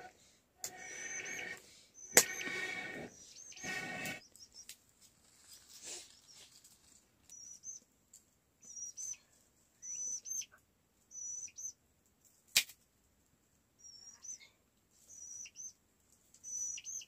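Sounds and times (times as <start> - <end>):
sharp crack: 12.5 - 12.8.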